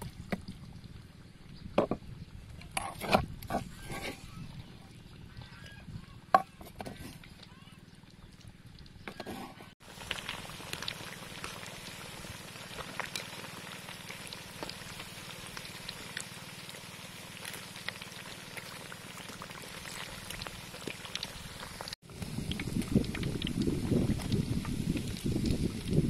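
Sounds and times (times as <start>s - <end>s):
oil popping and crackling: 7.1s - 26.0s
fish deep-frying in oil: 9.8s - 26.0s.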